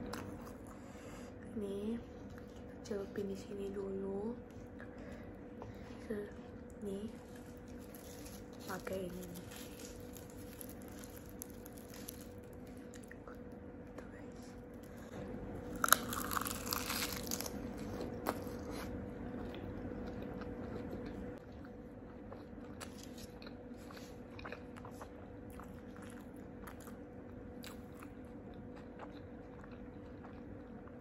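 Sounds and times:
faint hum: 0.0s - 31.0s
close-up chewing: 4.5s - 13.6s, 14.6s - 31.0s
crunchy bite: 7.4s - 13.4s, 15.7s - 19.6s.

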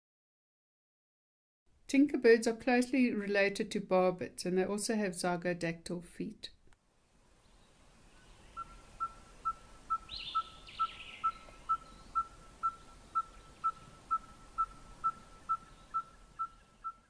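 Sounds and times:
bird piping repeated notes: 7.5s - 17.0s
higher-pitched bird call: 8.5s - 17.0s.

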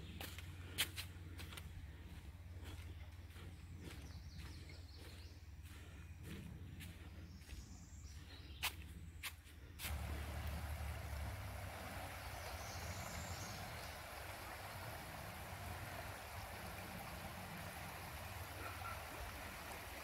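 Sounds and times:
water rushing over stones: 9.9s - 20.0s.

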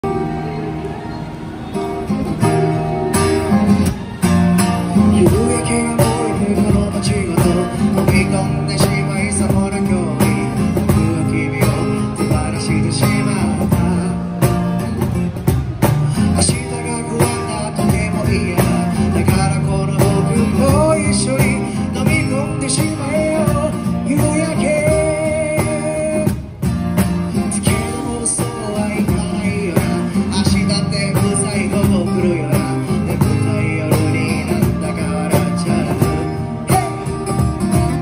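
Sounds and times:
strummed acoustic guitar: 0.0s - 38.0s
cajon and cymbal beat: 1.7s - 38.0s
man singing into microphone: 4.9s - 14.8s, 16.1s - 26.4s, 27.3s - 37.3s.

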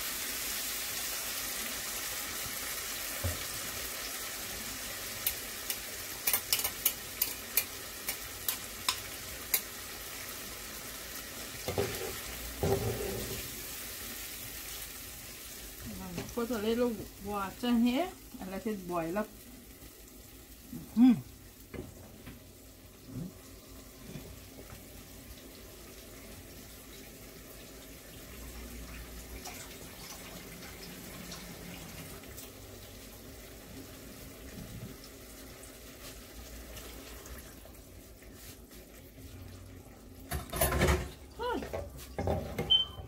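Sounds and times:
tap water running into sink: 3.1s - 3.8s, 26.9s - 32.8s, 40.3s - 42.8s.

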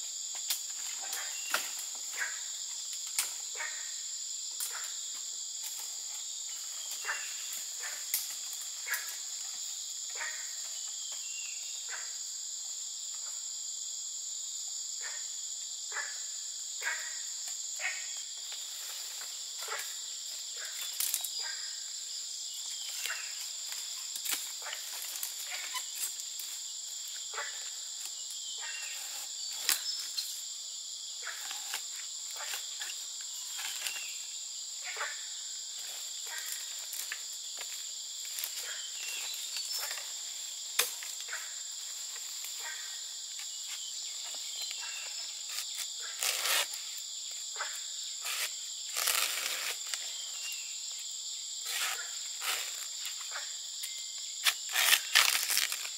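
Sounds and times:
high-pitched insect chorus: 0.0s - 55.9s
rustling: 48.2s - 50.0s.

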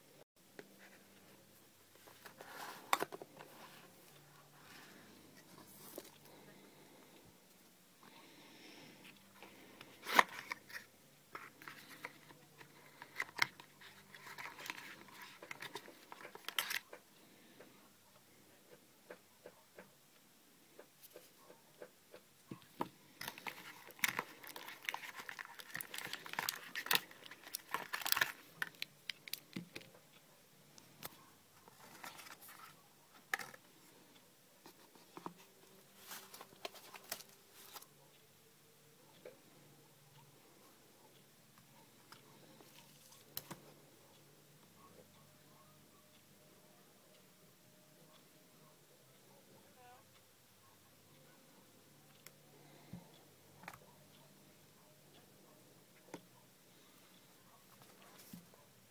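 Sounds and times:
cardboard box packaging rustling: 10.0s - 16.8s, 23.2s - 29.4s.

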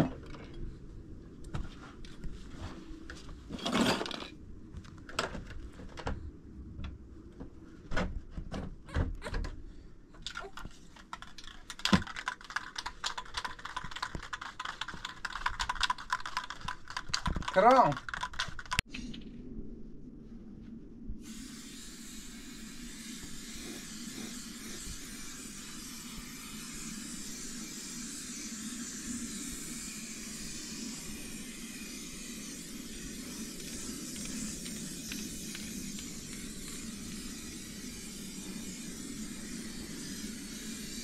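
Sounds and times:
spray-paint can hissing: 11.2s - 17.6s, 21.3s - 41.0s.

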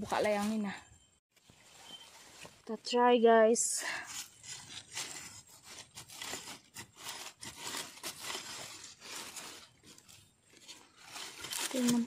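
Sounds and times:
hand scraping through dry soil: 4.0s - 12.0s.

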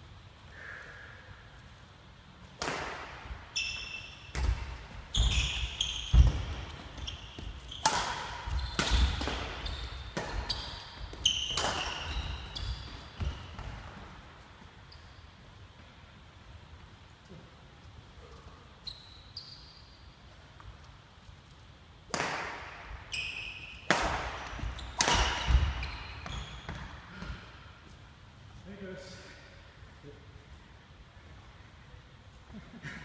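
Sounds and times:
racket hitting shuttlecock: 2.5s - 14.0s, 22.1s - 23.0s, 23.6s - 27.5s
sneaker squeaks: 3.5s - 14.0s, 14.6s - 15.5s, 18.4s - 20.4s, 23.0s - 27.7s.

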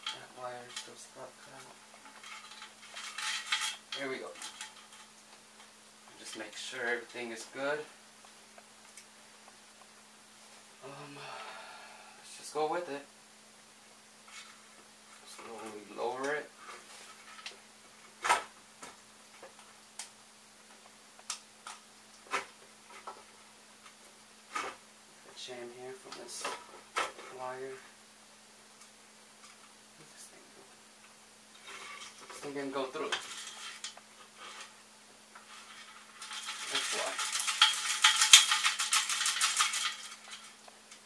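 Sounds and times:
clicks and knocks of parts handled: 0.0s - 6.4s, 35.4s - 41.0s.

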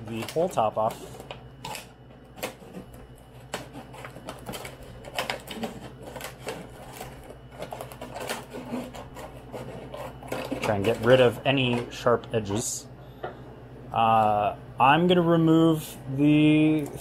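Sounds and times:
scissors snipping plastic: 0.0s - 11.9s.

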